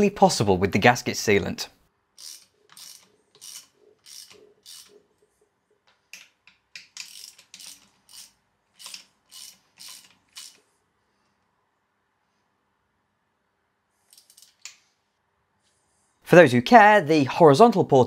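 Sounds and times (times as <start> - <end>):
ratchet wrench rasping: 2.2 - 5.1, 6.8 - 10.6, 14.1 - 14.7.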